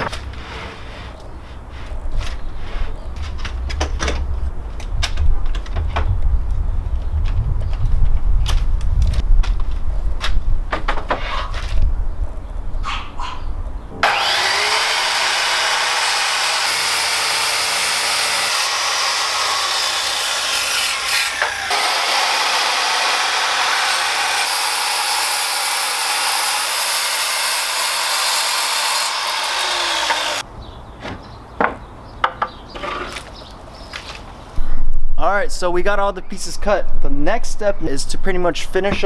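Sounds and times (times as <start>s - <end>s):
power saw cutting wood: 14.0s - 30.4s.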